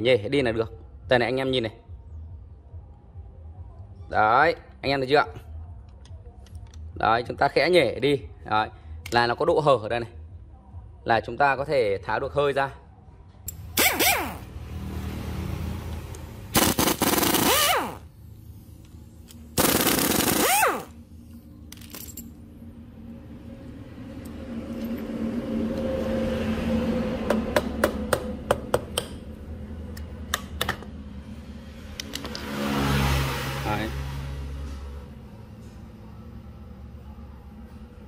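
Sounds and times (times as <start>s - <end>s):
impact wrench rattling: 16.6s - 18.0s, 19.2s - 21.0s
sharp metal clicks and taps: 27.8s - 29.2s, 29.9s - 30.9s.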